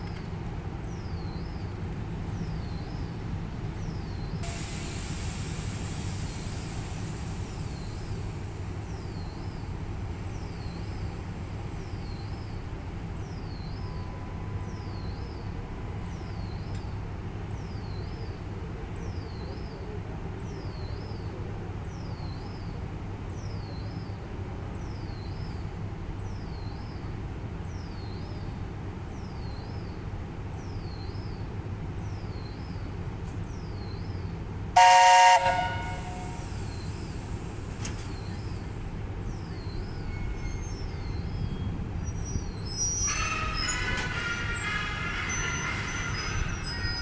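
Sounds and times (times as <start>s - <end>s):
electric locomotive humming: 0.0s - 19.0s, 31.4s - 47.0s
locomotive horn blast: 34.8s - 36.6s.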